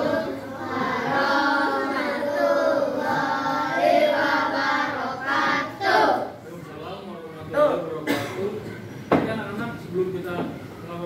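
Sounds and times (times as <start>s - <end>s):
children singing together: 0.0s - 6.4s.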